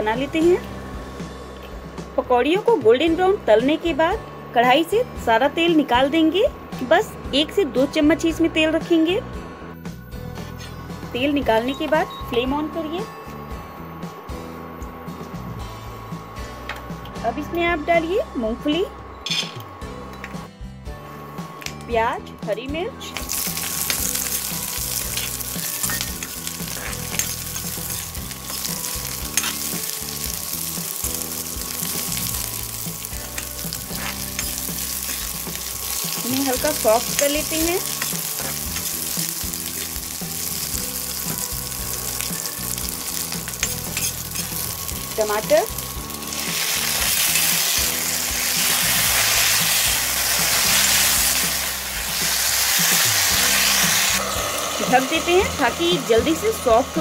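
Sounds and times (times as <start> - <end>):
food sizzling in hot oil: 23.0 - 57.0
steel spatula stirring: 23.3 - 53.8
metal spoon scraping pan: 43.5 - 44.6.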